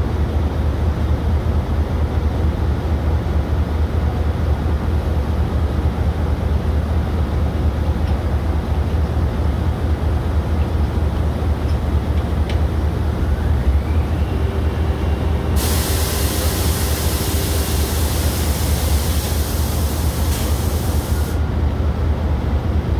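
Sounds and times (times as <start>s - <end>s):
diesel engine rumbling: 7.3s - 22.7s
hydraulic whine and hum: 9.6s - 21.7s
loud hiss: 15.5s - 21.4s.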